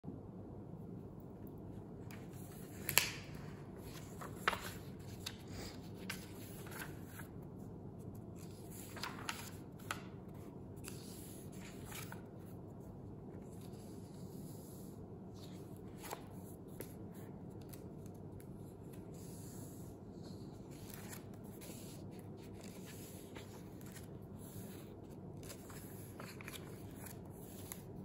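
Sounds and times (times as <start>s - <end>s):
book pages rustling: 2.0s - 28.0s
page flicks: 2.7s - 3.3s.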